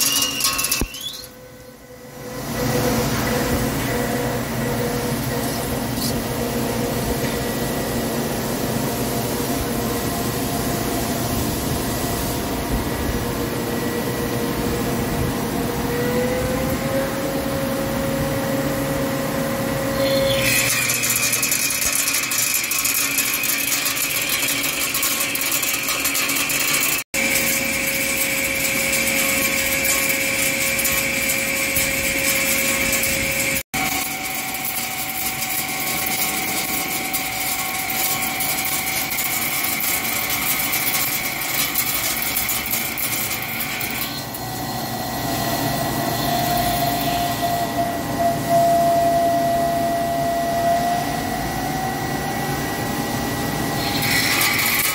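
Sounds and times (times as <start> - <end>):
high cutting whine: 11.8 - 54.9
lathe machining noise: 13.2 - 54.9.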